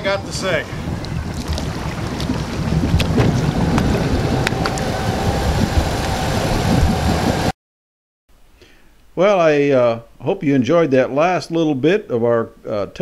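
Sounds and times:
boat engine running at low speed: 0.0s - 7.5s
water noise: 0.0s - 7.6s
wind noise on microphone: 0.0s - 7.6s.

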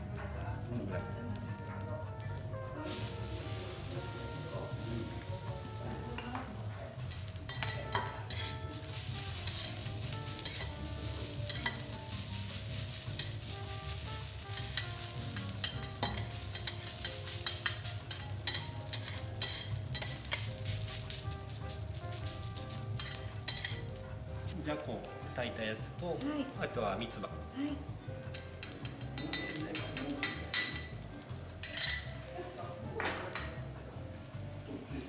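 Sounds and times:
rice sizzling on a griddle: 0.0s - 35.0s
metal spatulas scraping steel plate: 7.5s - 10.8s, 14.6s - 20.4s, 23.0s - 23.9s.

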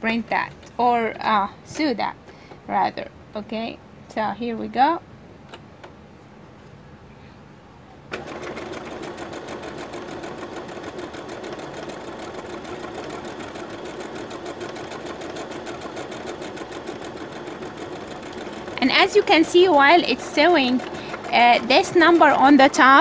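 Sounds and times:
sewing machine stitching: 8.1s - 23.0s.

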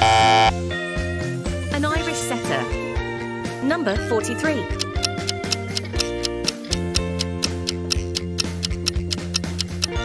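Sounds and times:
background music: 0.0s - 10.0s
countdown timer ticking: 4.6s - 10.0s.

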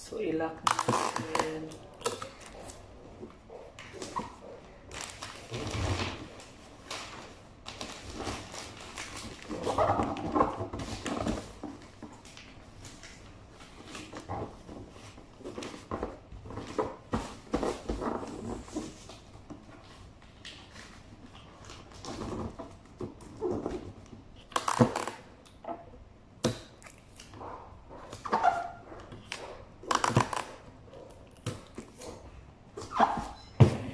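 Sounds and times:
wrapping paper crinkling: 3.8s - 11.2s.

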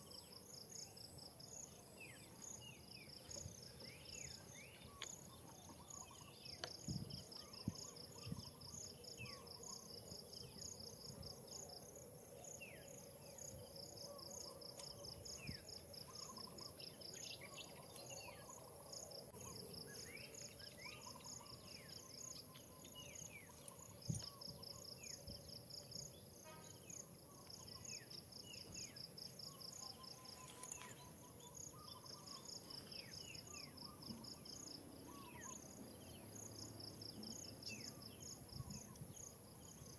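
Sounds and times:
insect chirping in pulses: 0.0s - 39.9s.

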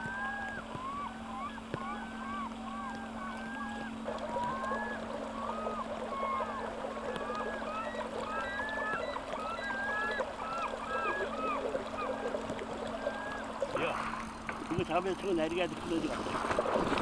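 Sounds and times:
flock of birds calling: 0.0s - 13.6s
steady low hum: 0.0s - 17.0s.

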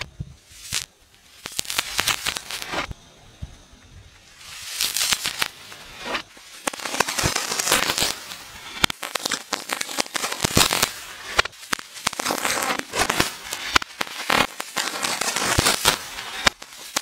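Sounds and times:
firework sparks crackling and hissing: 0.0s - 17.0s.

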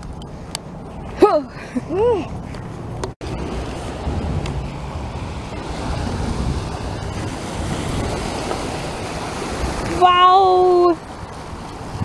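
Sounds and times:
wind rumbling on microphone: 0.0s - 12.0s
waves lapping on rocky shore: 3.4s - 12.0s.

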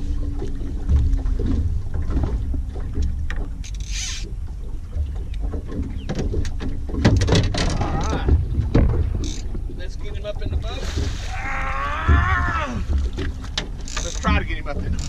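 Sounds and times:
small knocks: 0.8s - 9.7s
wind buffeting microphone: 4.3s - 15.0s.

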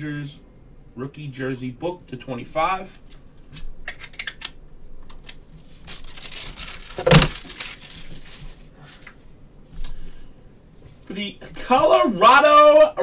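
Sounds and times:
plastic bag crinkling: 5.6s - 9.0s.

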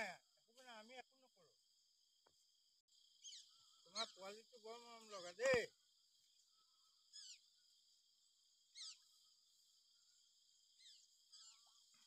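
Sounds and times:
high insect drone: 0.0s - 12.0s
bird calling: 3.1s - 5.6s, 6.5s - 7.6s, 8.6s - 9.4s, 10.7s - 12.0s.

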